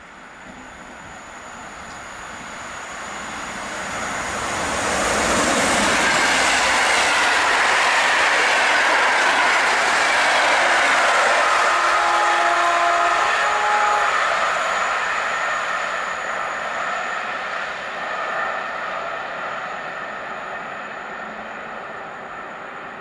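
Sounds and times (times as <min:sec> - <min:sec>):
train wheels rushing on rails: 0:00.0 - 0:23.0
train coaches clattering: 0:03.2 - 0:17.4.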